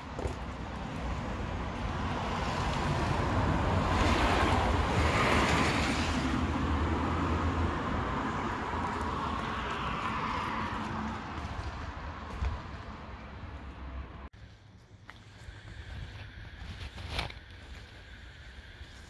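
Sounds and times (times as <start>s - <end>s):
vehicle passing: 0.8s - 14.3s.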